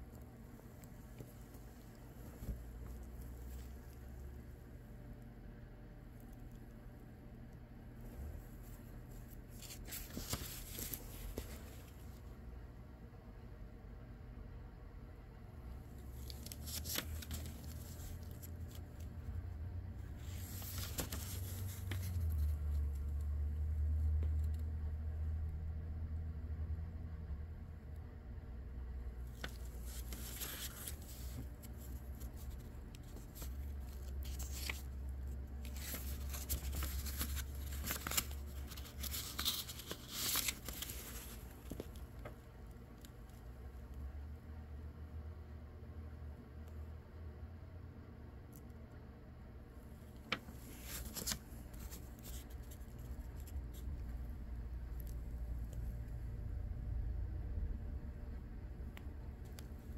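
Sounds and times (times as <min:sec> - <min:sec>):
steady low hum: 0:00.0 - 0:59.9
book pages turning: 0:08.4 - 0:12.2, 0:15.9 - 0:19.3, 0:20.0 - 0:23.2, 0:29.2 - 0:42.4, 0:50.1 - 0:54.2.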